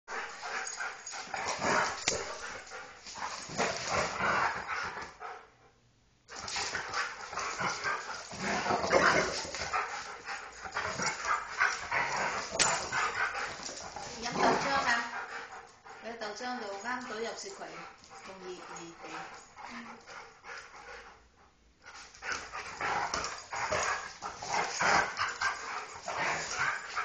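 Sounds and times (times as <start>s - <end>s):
dogs barking and yipping: 0.1s - 3.9s, 6.4s - 15.8s, 22.2s - 27.0s.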